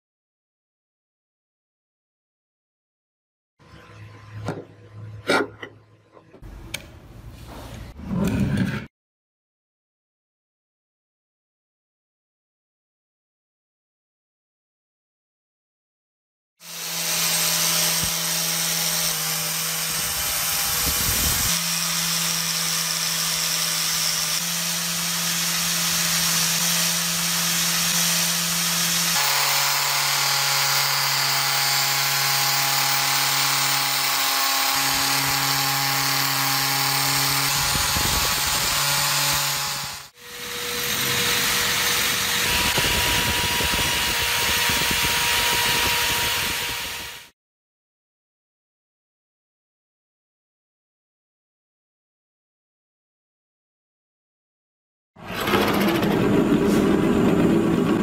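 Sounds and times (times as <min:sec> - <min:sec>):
drill wire wheel on metal: 0:16.8 - 0:47.3.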